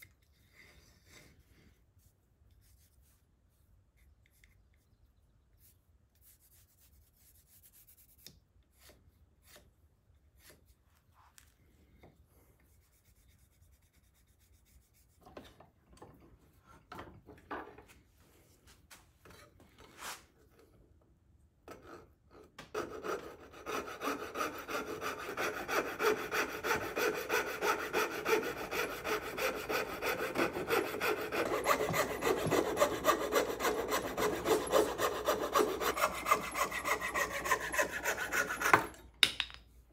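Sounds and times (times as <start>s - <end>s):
coping saw cutting wood: 22.7s - 39.0s
pencil scratching: 22.8s - 38.9s.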